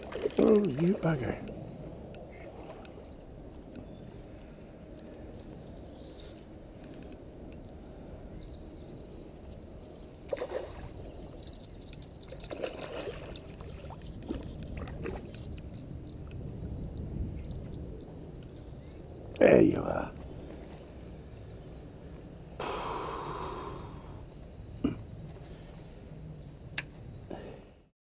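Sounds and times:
steady low rumble: 0.7s - 10.3s, 13.4s - 19.4s, 20.0s - 27.2s
fish splashing in water: 10.3s - 11.0s.

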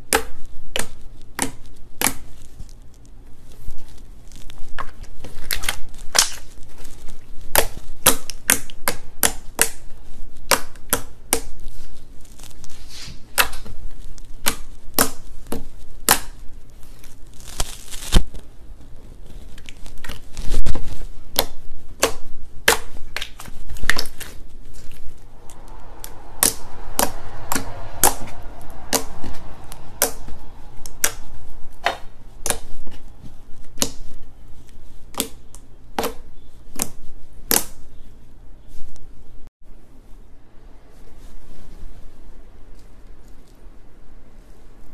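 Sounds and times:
slime squelch: 0.0s - 38.0s
slime clicking and popping: 14.4s - 16.4s.

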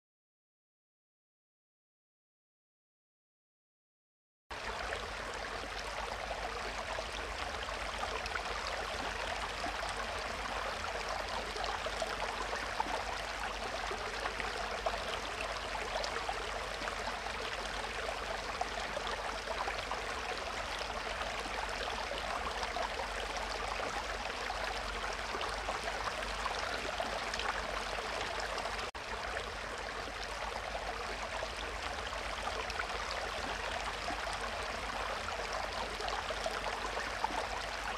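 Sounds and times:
aquarium water bubbling: 4.6s - 37.9s.

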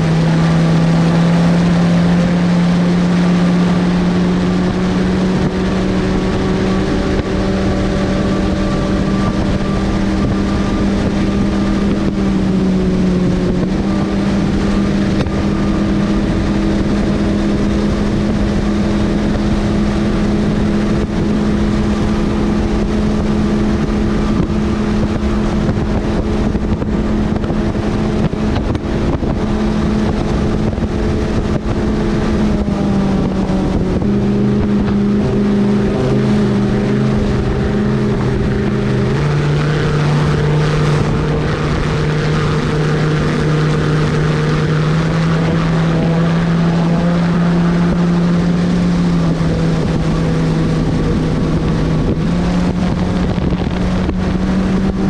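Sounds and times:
outboard motor running hard: 0.0s - 55.0s
wind rushing over microphone: 0.0s - 55.0s.

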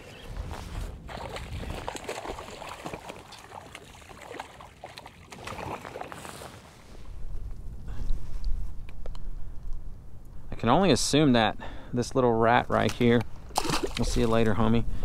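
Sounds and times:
fish splashing in water: 1.1s - 6.3s, 13.6s - 14.2s.

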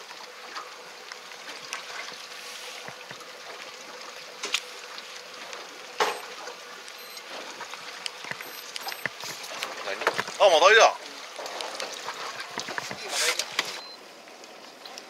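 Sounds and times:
sea and wind noise: 0.0s - 15.0s.

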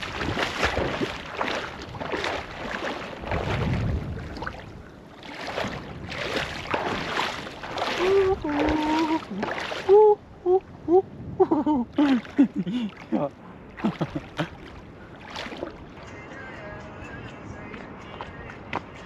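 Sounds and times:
water splashing around wading legs: 0.0s - 10.2s, 11.9s - 16.6s.

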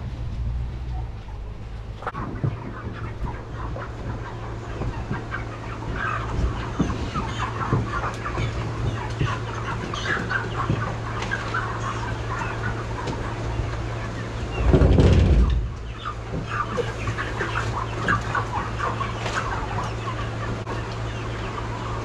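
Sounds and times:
steady low hum: 0.0s - 22.0s
chickens clucking: 0.8s - 22.0s
crates knocking: 2.2s - 11.3s, 14.6s - 16.8s.

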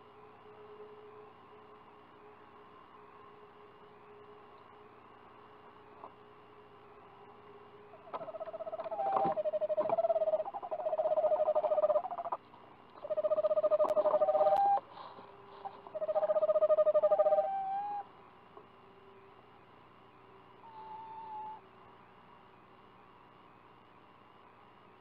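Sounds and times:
owl trilling: 8.0s - 12.4s, 13.0s - 14.9s, 15.5s - 18.1s, 20.6s - 21.6s.

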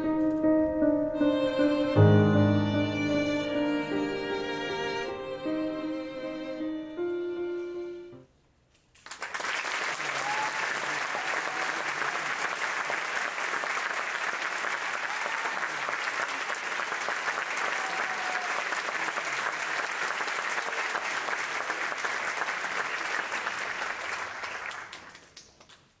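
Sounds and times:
audience applauding: 9.0s - 26.0s.

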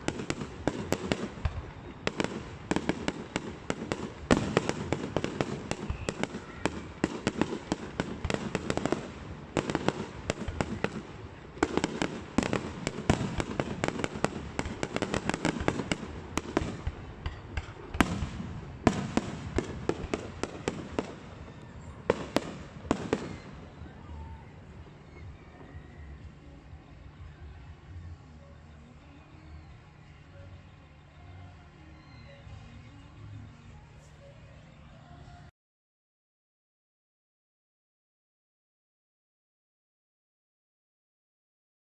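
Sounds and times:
loud firework bangs: 0.0s - 21.4s, 22.1s - 23.7s
fireworks popping and crackling: 0.0s - 25.3s.

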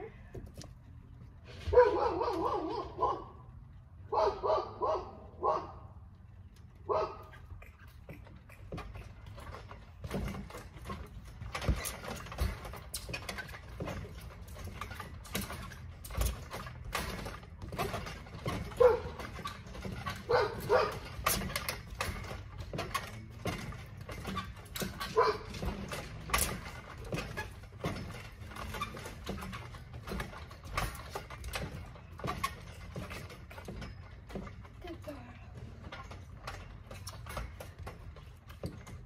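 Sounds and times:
thumps on a trampoline: 1.4s - 3.4s, 6.8s - 39.0s
dog barking: 1.7s - 3.3s, 4.1s - 5.8s, 6.9s - 7.2s, 18.8s - 19.1s, 20.3s - 21.0s, 25.2s - 25.5s.

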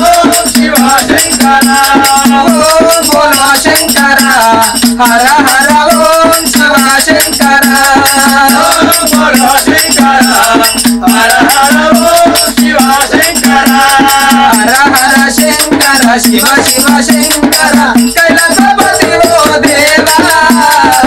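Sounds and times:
hand drum beat: 0.0s - 21.0s
jingling percussion: 0.0s - 21.0s
voices chanting a melodic refrain: 7.8s - 21.0s.

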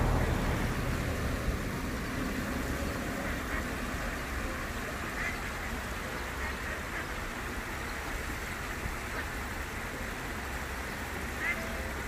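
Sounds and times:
wind rumbling on microphone: 0.0s - 4.5s
stream water spilling over weir: 0.0s - 12.0s.

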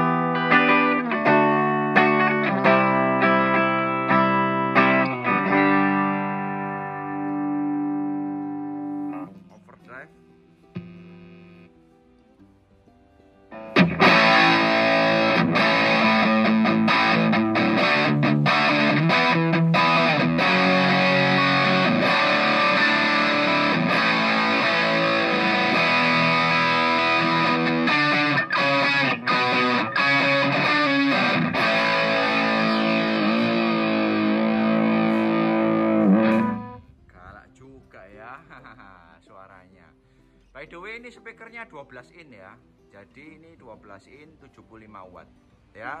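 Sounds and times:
distorted electric guitar: 0.0s - 9.7s, 10.7s - 11.7s, 13.5s - 37.0s.

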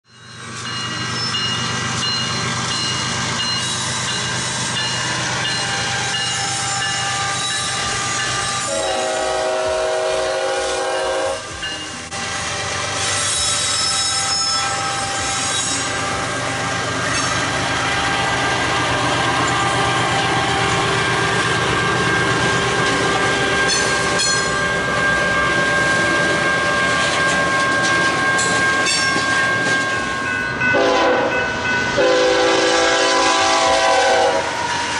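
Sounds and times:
freight train rumbling past: 0.1s - 34.9s
locomotive horn blast: 7.0s - 11.7s, 30.7s - 34.8s.

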